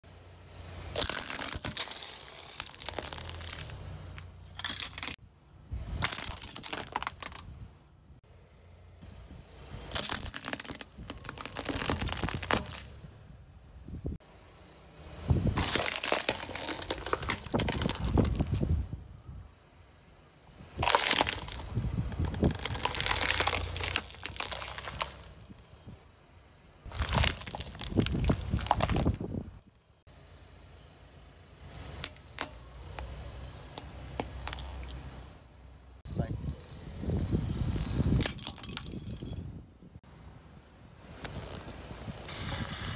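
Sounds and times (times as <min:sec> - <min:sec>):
plastic and candy crunching: 0:00.9 - 0:03.8, 0:09.9 - 0:13.0, 0:15.6 - 0:18.8, 0:20.8 - 0:25.4, 0:26.9 - 0:29.2.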